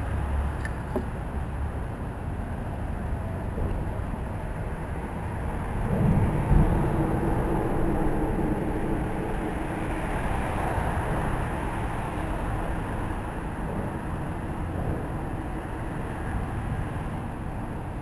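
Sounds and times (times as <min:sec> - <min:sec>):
cars driving past: 0:03.6 - 0:18.0.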